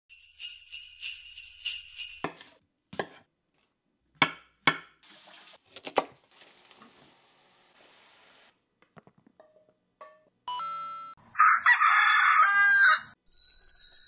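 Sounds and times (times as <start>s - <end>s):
jingling bell-like chime: 0.1s - 2.3s, 13.2s - 14.0s
knife chopping on wooden board: 2.2s - 3.2s, 4.2s - 5.0s.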